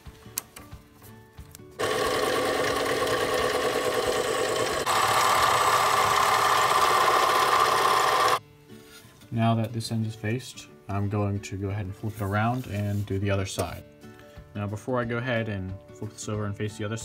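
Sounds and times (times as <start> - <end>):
metal lathe motor whine: 1.8 - 8.4.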